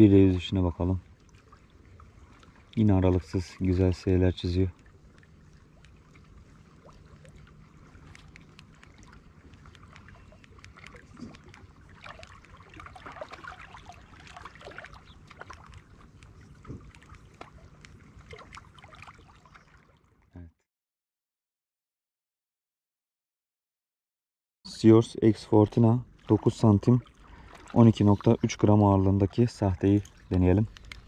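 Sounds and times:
water lapping and splashes: 0:00.0 - 0:20.6, 0:24.7 - 0:31.0
light clicks: 0:04.7 - 0:06.0, 0:08.0 - 0:11.8, 0:15.4 - 0:18.0, 0:30.0 - 0:31.0.

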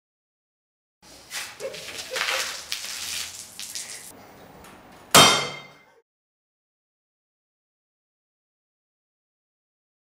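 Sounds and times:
metal bowl clanging: 0:05.2 - 0:06.0.

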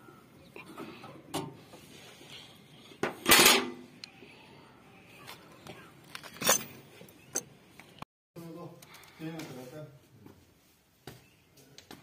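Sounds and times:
metal tools clinking: 0:06.0 - 0:07.5.

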